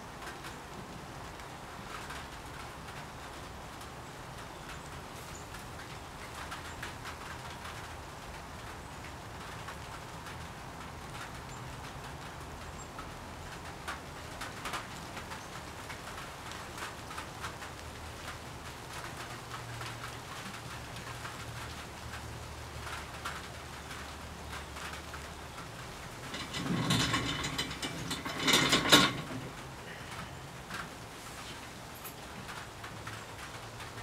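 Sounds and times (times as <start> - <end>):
rough scraping bursts: 26.2 - 30.0.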